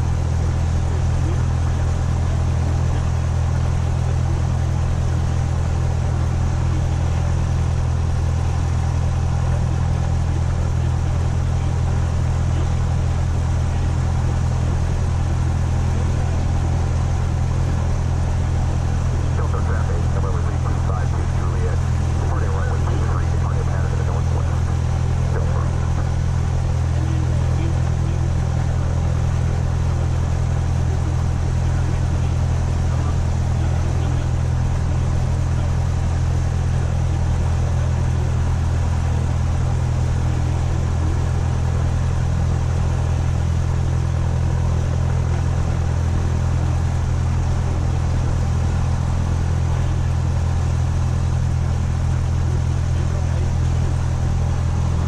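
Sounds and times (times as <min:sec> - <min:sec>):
airplane engine idling: 0:00.0 - 0:55.0.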